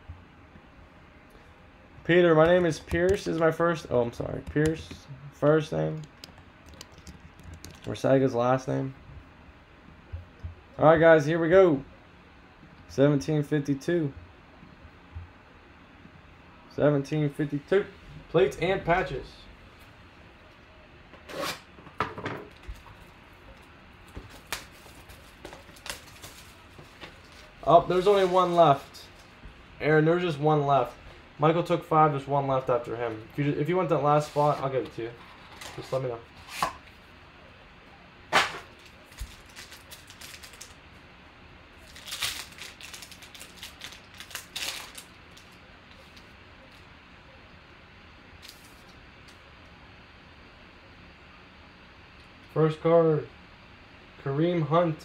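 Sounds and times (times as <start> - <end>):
foil wrapper crinkling and tearing: 24.3 - 28.8, 38.6 - 40.8, 41.8 - 46.3.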